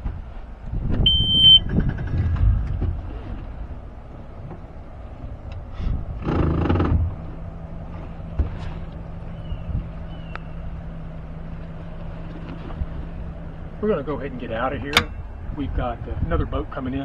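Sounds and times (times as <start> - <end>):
short electronic beep: 1.0 - 1.7
outboard motor starting and idling: 1.0 - 15.6.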